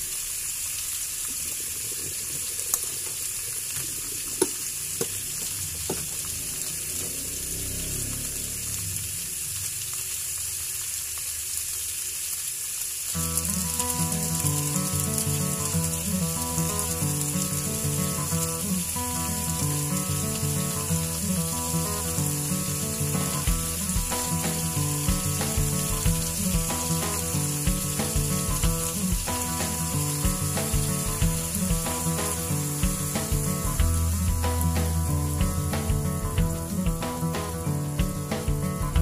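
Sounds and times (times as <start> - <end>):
fish sizzling in a pan: 0.0 - 39.0
background music: 17.6 - 39.0.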